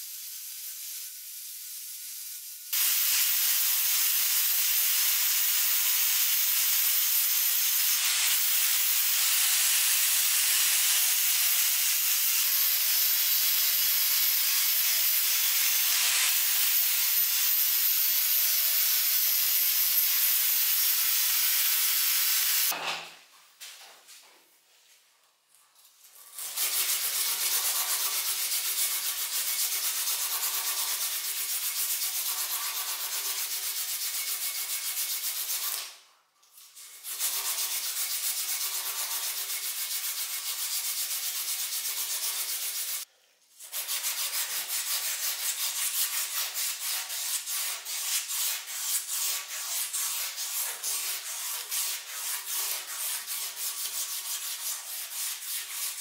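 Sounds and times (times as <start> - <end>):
sandpaper scraping metal: 26.0 - 35.9, 36.6 - 43.0, 43.6 - 56.0.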